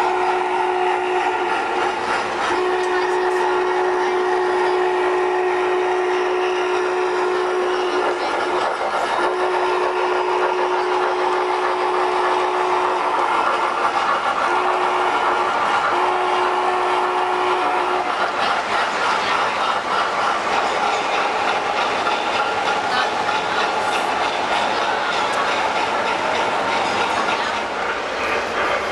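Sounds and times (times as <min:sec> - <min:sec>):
model locomotive whistle blasts: 0:00.0 - 0:01.5, 0:02.5 - 0:08.2, 0:09.2 - 0:13.3, 0:14.5 - 0:18.1
model train wheels rattling on track: 0:01.2 - 0:05.0, 0:06.0 - 0:28.9.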